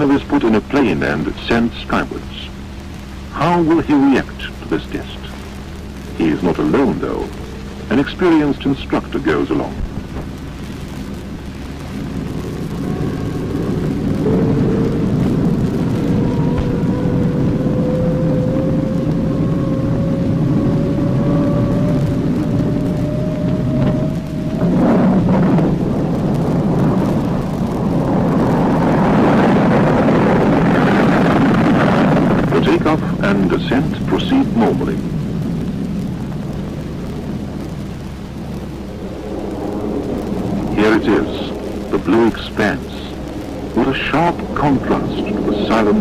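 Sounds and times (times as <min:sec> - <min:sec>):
jet engine rumble and whine: 0:00.0 - 0:46.0
rushing roar: 0:00.0 - 0:46.0.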